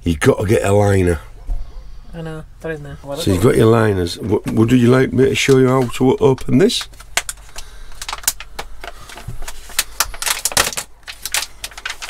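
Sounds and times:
plastic wrapper crinkling: 4.6 - 12.0.

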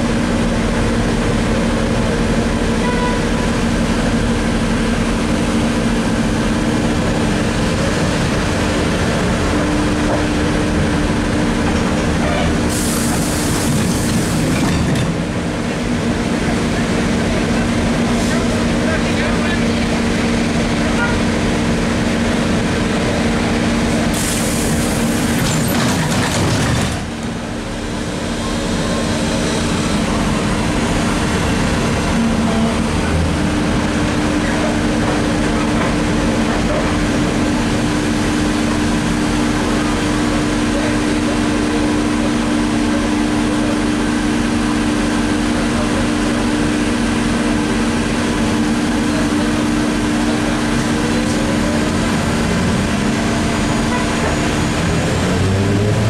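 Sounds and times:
trolleybus electrical hum: 0.0 - 56.0
trolleybus rolling noise: 0.0 - 56.0.

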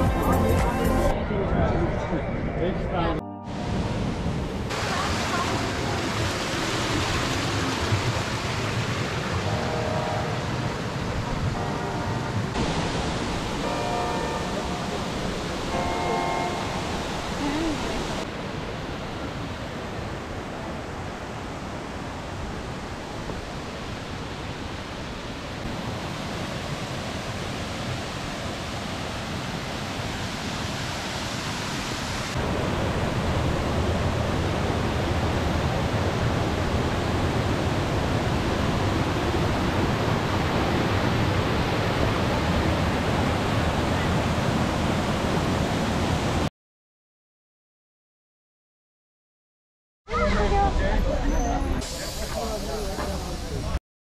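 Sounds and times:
waterfall rushing: 3.5 - 46.5.

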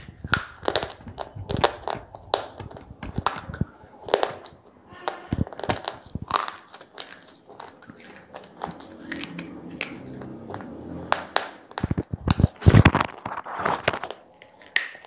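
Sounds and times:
crunching and chewing: 0.0 - 15.0.

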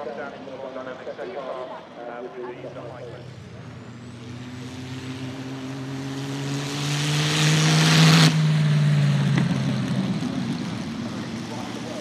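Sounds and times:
race car engine passing: 2.5 - 12.0.

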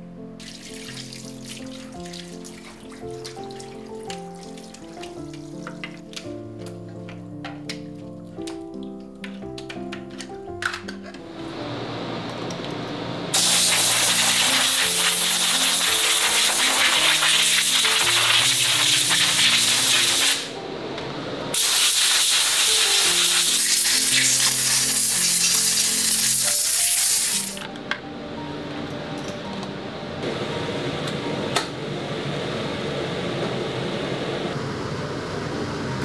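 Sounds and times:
background music: 0.0 - 32.9
air blow gun hissing: 13.3 - 20.6, 21.5 - 27.6.

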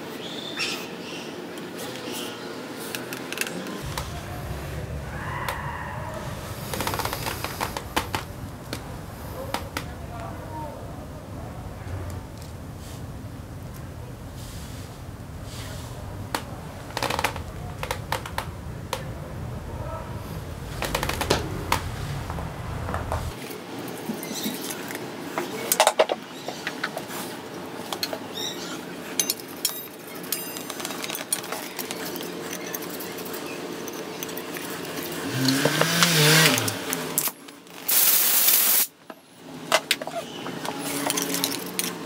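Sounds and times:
metal parts clattering: 29.0 - 35.7, 39.8 - 42.0
small metal parts clinking: 29.0 - 35.8, 39.9 - 42.0.

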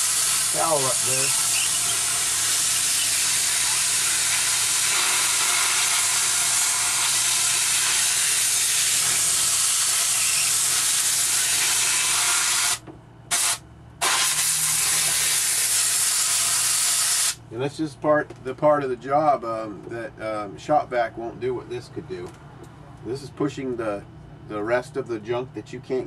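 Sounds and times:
compressed air hissing: 0.0 - 17.4.

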